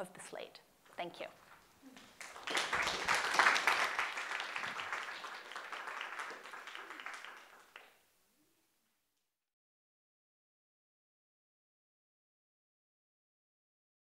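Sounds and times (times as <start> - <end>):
audience applauding: 2.0 - 8.0.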